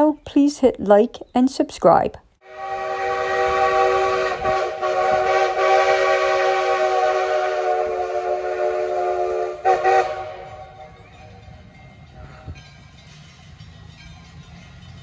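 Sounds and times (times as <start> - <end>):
steam locomotive whistle: 2.4 - 10.9.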